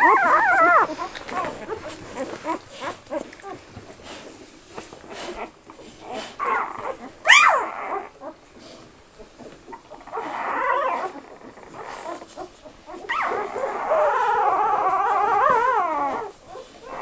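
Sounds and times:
puppy squealing: 0.0 - 3.2, 6.4 - 8.4, 9.8 - 17.0
puppies whimpering: 0.0 - 3.6, 5.0 - 8.4, 9.1 - 17.0.

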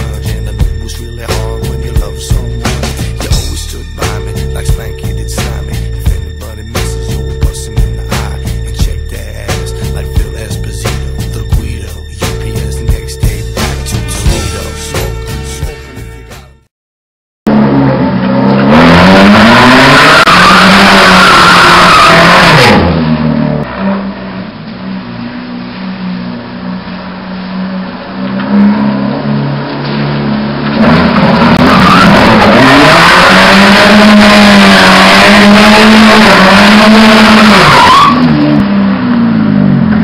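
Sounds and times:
car engine revving hard: 17.5 - 40.0.

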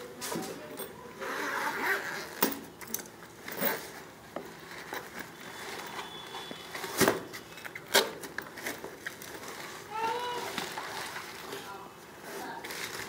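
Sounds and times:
fabric and cardboard rustling: 3.2 - 13.0.

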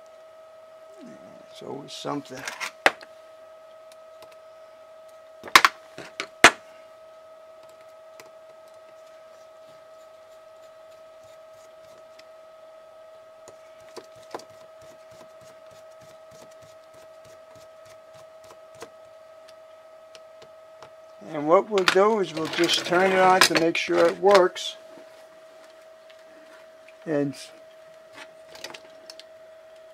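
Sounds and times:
steady high hum: 0.0 - 29.9.

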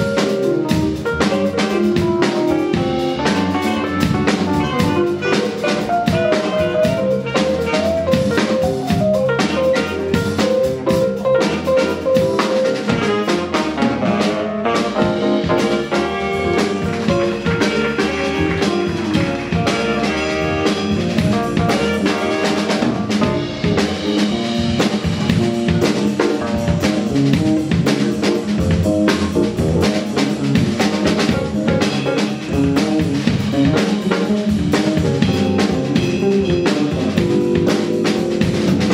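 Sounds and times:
drum kit: 0.0 - 38.9
electric bass guitar: 0.0 - 38.9
saxophones playing melody: 2.6 - 8.6, 11.4 - 24.5.

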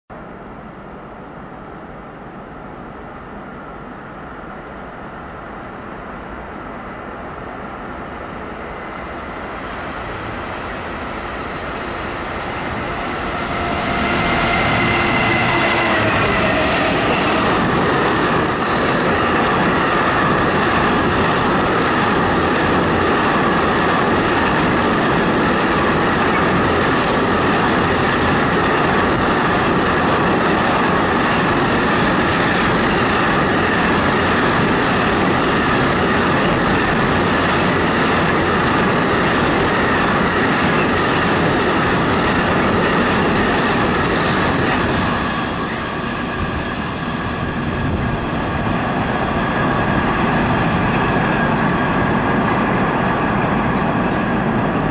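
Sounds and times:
train wheels rumbling on rails: 6.3 - 54.9
high wheel squeal: 11.1 - 19.5, 43.7 - 45.9
brief high squeaks: 18.0 - 19.2.

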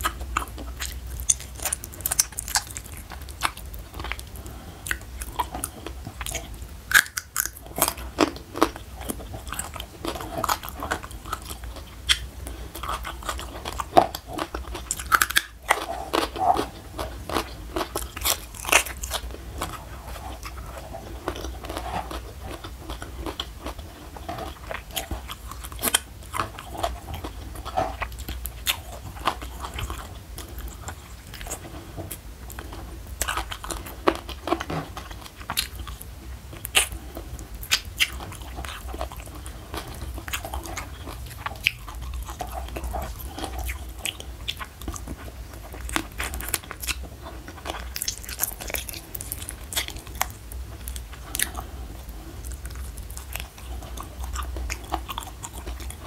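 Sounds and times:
chewing and crunching: 0.0 - 56.0.

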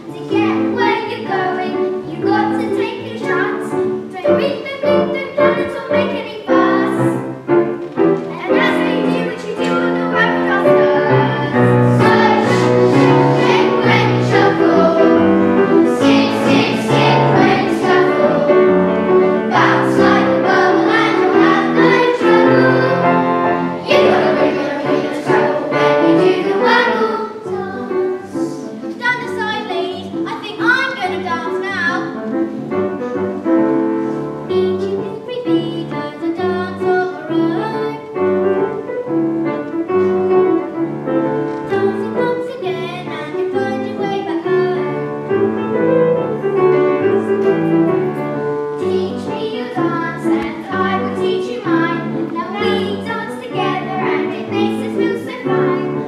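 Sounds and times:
instrumental backing music: 0.0 - 56.0
children's chorus singing: 8.0 - 29.6, 45.7 - 56.0.

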